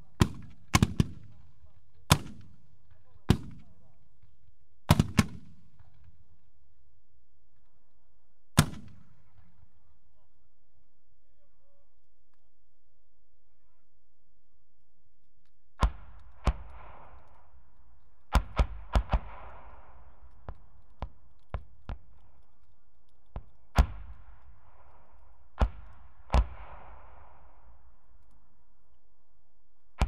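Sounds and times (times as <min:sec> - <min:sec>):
mortar firing reports: 0:00.0 - 0:04.0, 0:04.9 - 0:06.0, 0:08.6 - 0:09.5
rolling echo: 0:15.8 - 0:29.3.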